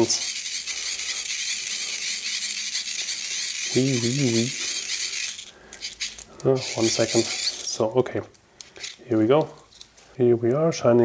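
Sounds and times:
hand-crank flashlight whirring: 0.1 - 7.6.

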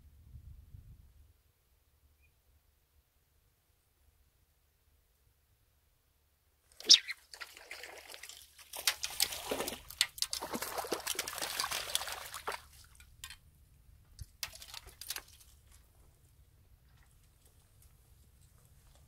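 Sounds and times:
fish splashing at water surface: 6.8 - 13.0
light clicks and rustles: 12.8 - 19.0.

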